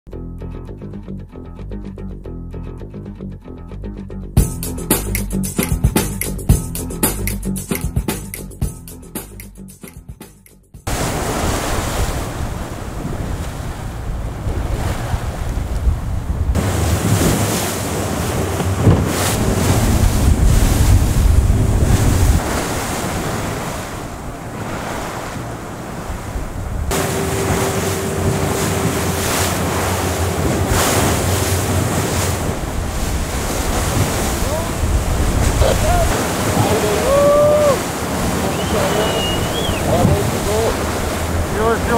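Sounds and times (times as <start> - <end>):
rough water rushing: 10.9 - 41.9
wind buffeting microphone: 10.9 - 41.9.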